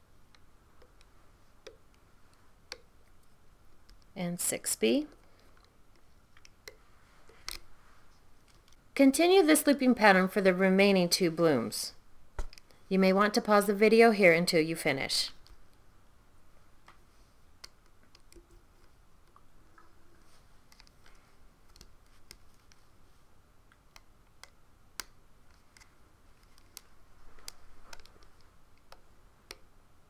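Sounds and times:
soft rustle: 0.9 - 8.9, 18.4 - 23.4, 25.4 - 28.9.

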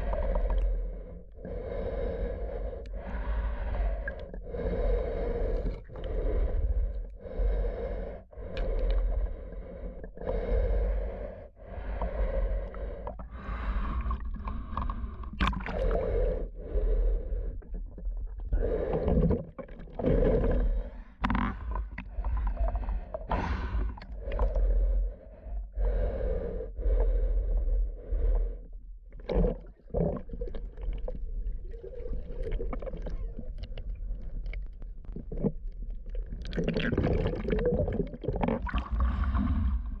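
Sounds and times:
muffled underwater breathing whoosh: 20.0 - 28.8, 37.2 - 40.0.

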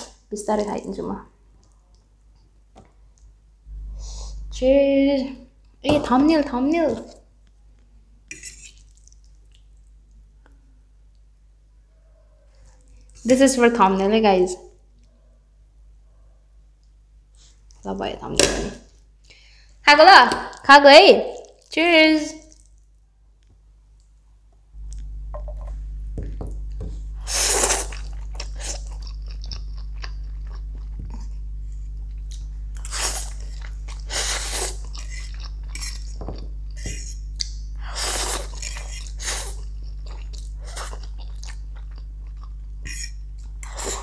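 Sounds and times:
low steady hum: 0.0 - 44.0
noodle slurping: 8.3 - 9.2, 27.2 - 29.4, 32.8 - 36.2, 37.8 - 41.6
person chewing wetly: 8.3 - 10.6, 21.3 - 21.7, 22.4 - 22.9, 27.6 - 44.0.

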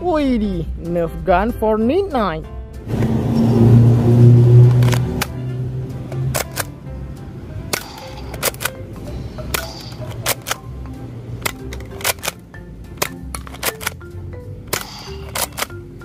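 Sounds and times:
background music: 0.0 - 16.0
toy blaster clicks: 6.3 - 6.7, 7.7 - 8.8, 9.5 - 10.6, 11.4 - 12.4, 13.0 - 14.0, 14.7 - 15.8.

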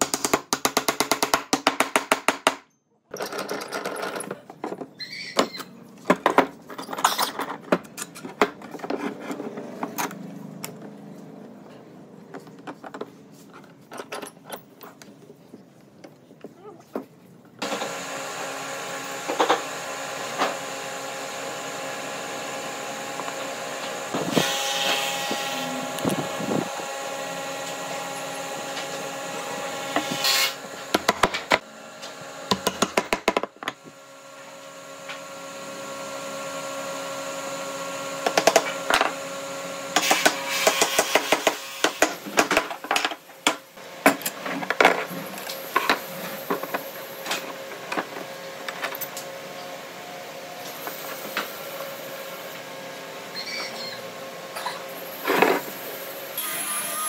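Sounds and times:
power tool motor humming: 17.6 - 33.1, 55.2 - 57.0.

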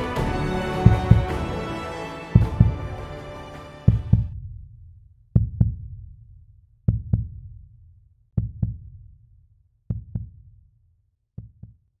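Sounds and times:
heartbeat thumps: 0.0 - 3.1, 3.9 - 4.3.

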